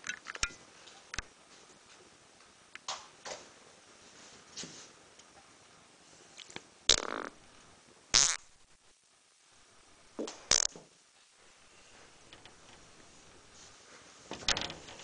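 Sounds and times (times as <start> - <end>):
short fart sounds: 6.9 - 7.4, 8.1 - 8.5, 10.2 - 10.8.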